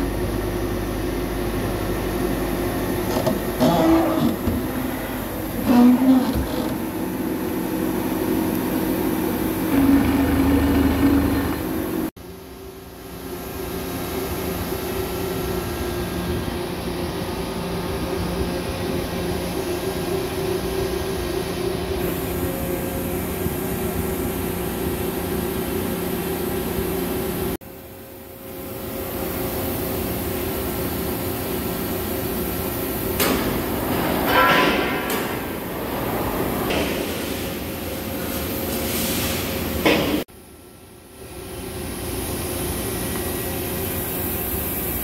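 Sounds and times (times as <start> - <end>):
machine shop equipment hum: 0.0 - 45.0
mechanical whirring with ringing tone: 1.0 - 12.1.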